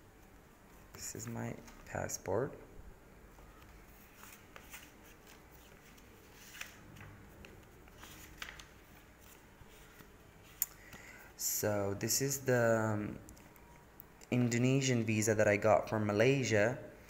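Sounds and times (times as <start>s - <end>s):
paper pages turning: 3.4s - 10.6s.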